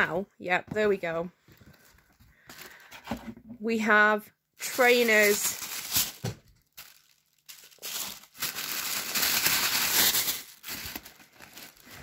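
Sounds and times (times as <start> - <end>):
tissue paper crinkling: 4.6 - 12.0.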